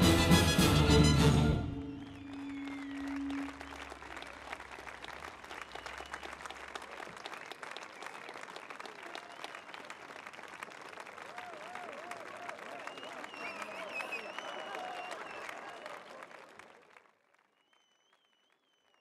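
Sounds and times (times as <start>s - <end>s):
held musical note: 0.0s - 4.6s
audience applauding: 1.0s - 19.0s.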